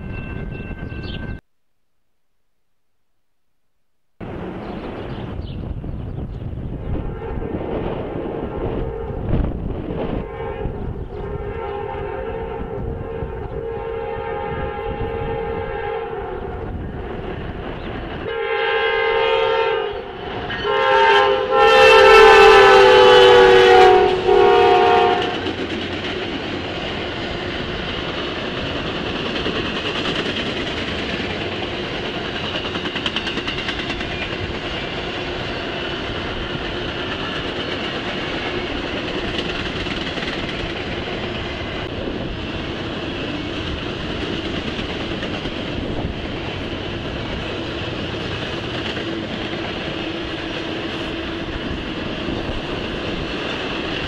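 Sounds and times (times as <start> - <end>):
train wheels rumbling: 4.2 - 54.0
locomotive air horn blasts: 6.8 - 7.8, 8.4 - 9.4, 10.1 - 16.6, 18.3 - 25.5
clatter over rail joints: 25.2 - 34.9, 36.0 - 41.6.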